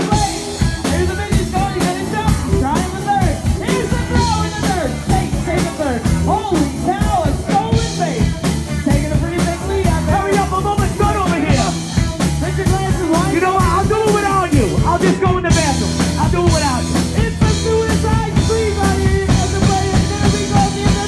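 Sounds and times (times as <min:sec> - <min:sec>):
amplified singing voices: 0:00.0 - 0:08.0
live rock band: 0:00.0 - 0:21.0.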